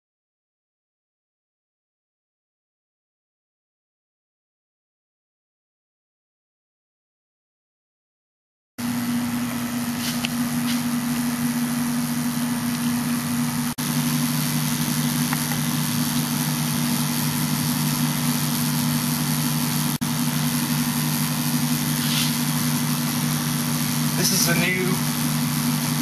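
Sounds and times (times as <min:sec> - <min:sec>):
electrical hum with hiss: 0:08.8 - 0:26.0.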